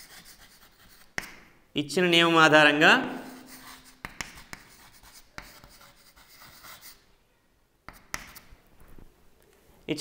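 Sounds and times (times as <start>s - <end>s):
chalk scratching on chalkboard: 0.0s - 1.4s, 3.0s - 7.0s, 7.9s - 8.6s
chalk tapping on board: 0.0s - 1.4s, 3.1s - 7.0s, 7.8s - 8.5s.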